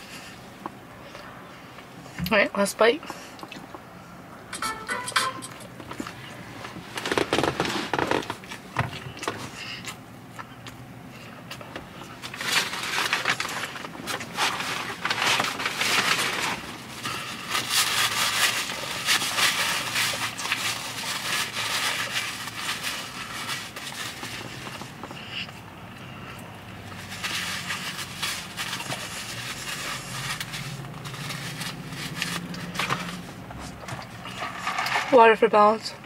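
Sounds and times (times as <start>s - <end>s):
food packaging rustling: 5.8s - 9.7s, 11.6s - 25.5s, 26.6s - 35.4s.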